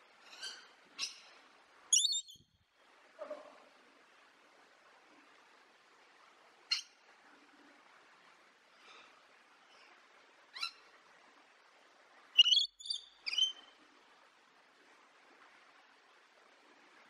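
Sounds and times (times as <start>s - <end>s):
lorikeet high-pitched calls: 1.9s - 2.4s, 12.4s - 13.7s.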